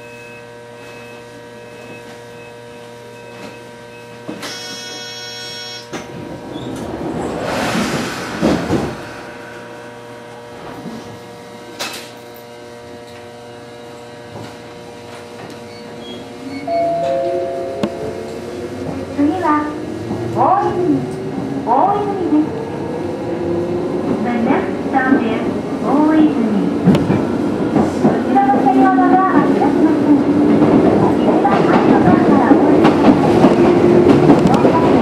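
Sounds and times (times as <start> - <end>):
train buzzer: 0.0 - 6.2
train electrical equipment humming: 0.0 - 35.0
train doors sliding: 4.2 - 12.3
loud hiss of air: 7.3 - 10.8.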